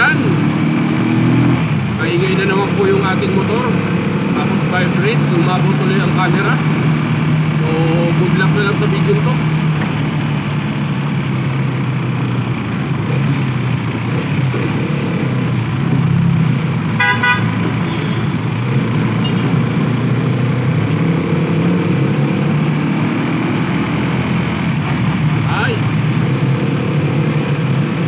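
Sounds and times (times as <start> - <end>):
vehicle engine running: 0.0 - 28.0
short horn toot: 17.0 - 18.4.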